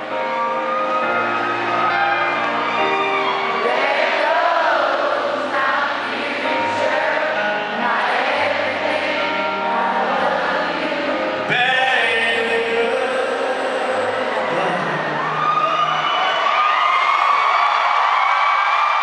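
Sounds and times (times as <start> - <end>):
country band playing chords: 0.0 - 15.6
crowd singing along: 1.5 - 15.6.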